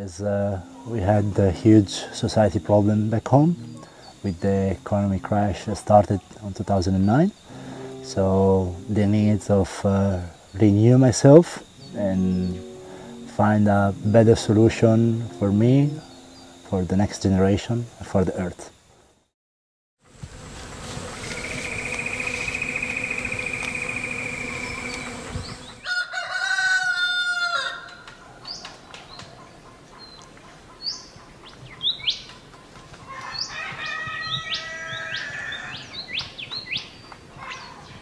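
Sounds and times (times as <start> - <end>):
steady high trill: 0.4 - 6.2, 7.5 - 9.7, 11.7 - 17.2, 21.0 - 25.9
small birds chirping: 0.5 - 16.9, 20.8 - 25.8, 28.4 - 38.0
rooster crowing: 21.6 - 28.2, 33.1 - 36.0
chicken calls: 33.1 - 35.9.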